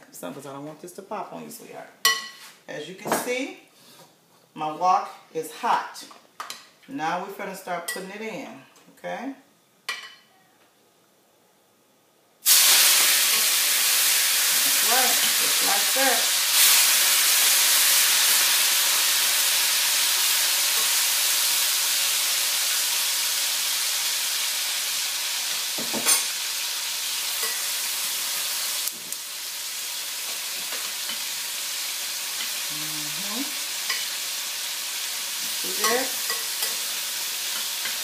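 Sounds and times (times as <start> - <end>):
meat sizzling in hot oil: 12.4 - 38.0.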